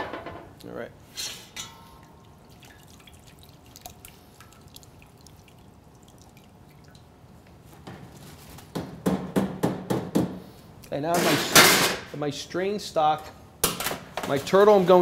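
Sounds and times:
stock dripping into pot: 1.6s - 7.2s.

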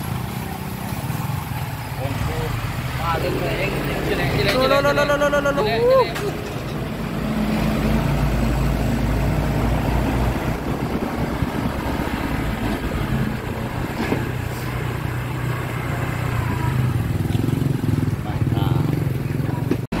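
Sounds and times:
truck diesel engine running: 0.0s - 20.0s.

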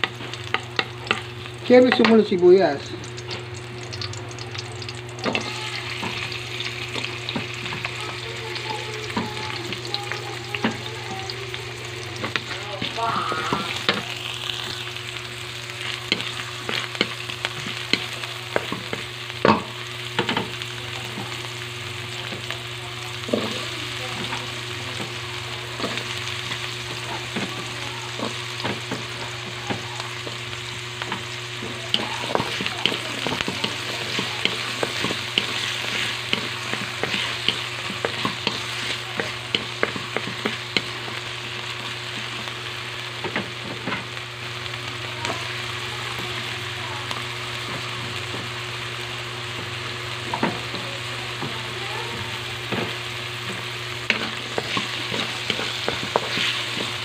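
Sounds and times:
onion sizzling in oil: 0.0s - 57.0s
wooden spatula scraping pan: 54.0s - 57.0s.

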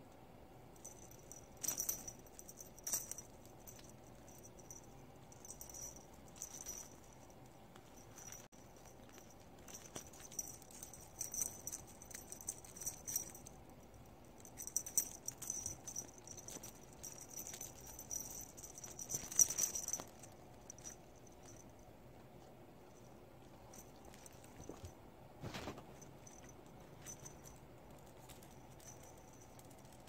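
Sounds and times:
kittens scratching fabric: 0.8s - 21.8s.

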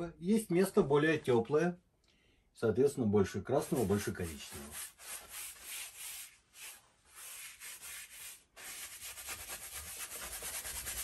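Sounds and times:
brush scrubbing paint on canvas: 3.6s - 11.0s.

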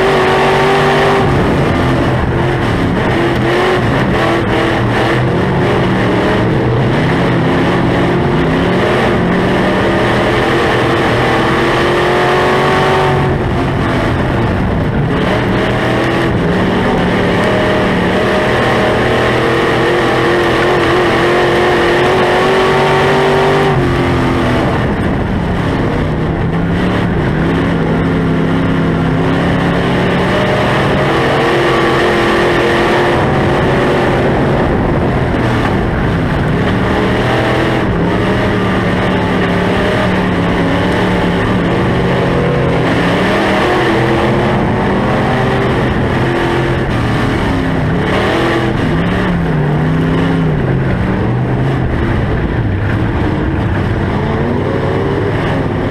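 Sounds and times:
race car engine revving: 0.0s - 55.9s.

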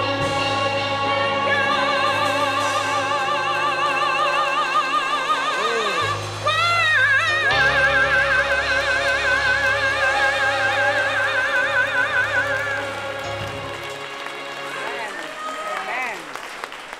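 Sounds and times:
woman singing with vibrato: 0.0s - 13.8s.

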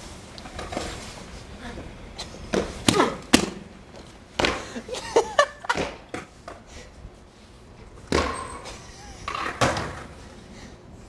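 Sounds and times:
skateboard clacking on concrete steps: 8.1s - 10.2s.

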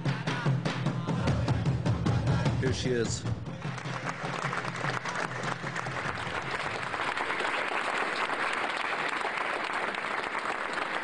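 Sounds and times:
music: 0.0s - 7.4s
crowd applauding: 3.5s - 11.0s.

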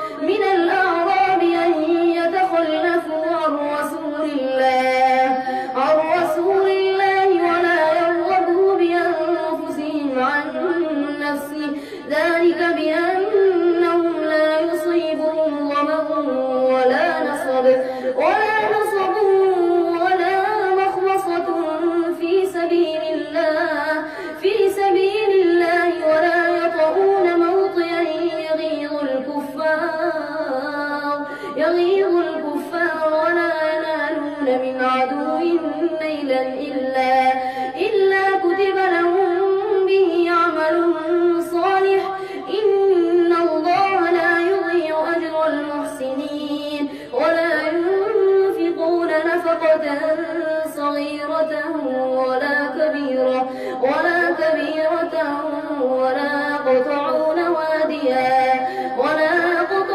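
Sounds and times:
boy chanting melodically: 0.0s - 59.9s
short breaths: 11.7s - 12.1s, 17.8s - 18.2s, 24.0s - 24.4s, 31.2s - 31.6s, 37.4s - 37.8s, 42.2s - 42.5s, 53.4s - 53.8s, 58.6s - 59.0s.

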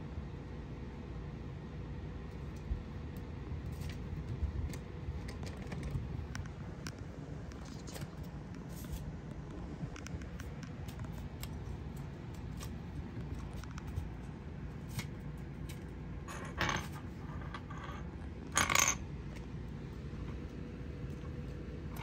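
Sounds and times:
kittens clicking and scuffing: 2.4s - 16.0s.

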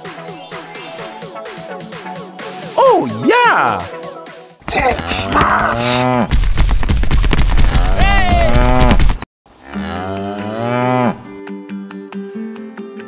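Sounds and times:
cattle mooing: 5.0s - 6.2s.

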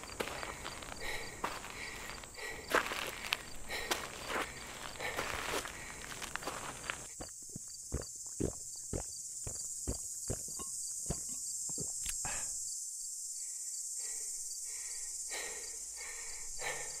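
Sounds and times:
footsteps walking: 0.0s - 12.0s
insects chirring: 0.0s - 17.0s.

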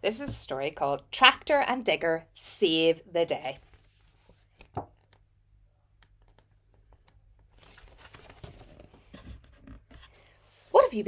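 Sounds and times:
book pages rustling: 3.6s - 5.2s, 6.1s - 10.9s.

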